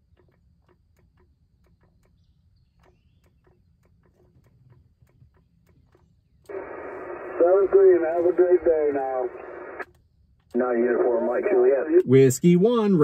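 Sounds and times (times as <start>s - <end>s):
sharp ticking: 0.0s - 6.8s.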